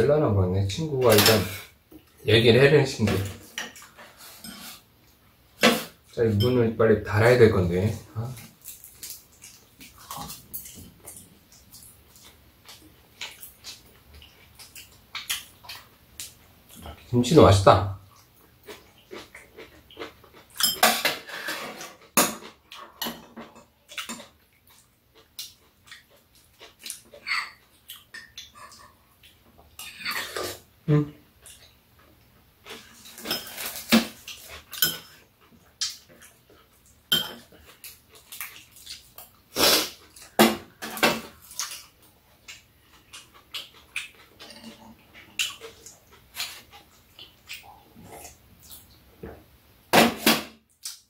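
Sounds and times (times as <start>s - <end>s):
close-up eating noises: 0.7s - 49.8s
utensils clinking on ceramic bowls: 6.4s - 6.6s, 20.6s - 21.2s, 34.7s - 35.2s, 37.1s - 37.6s
mouth eating noises: 41.4s - 49.1s.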